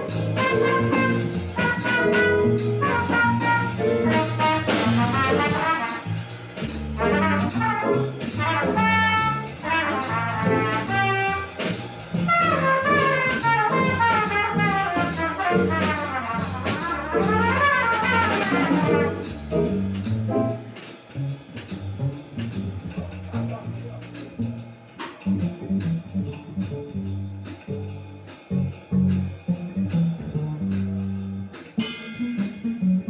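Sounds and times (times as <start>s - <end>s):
trumpet solo: 0.0s - 6.3s, 7.0s - 19.7s
drum kit: 0.0s - 33.0s
upright bass: 0.0s - 33.0s.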